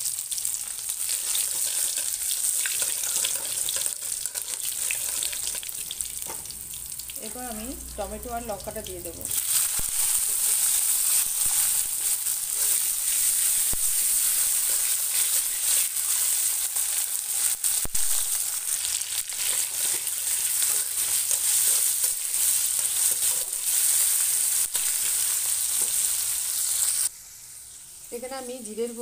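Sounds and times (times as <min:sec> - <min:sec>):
vegetables sizzling in hot oil: 0:00.0 - 0:29.0
metal spatula scraping pan: 0:01.1 - 0:05.9, 0:09.6 - 0:16.9, 0:19.4 - 0:24.2.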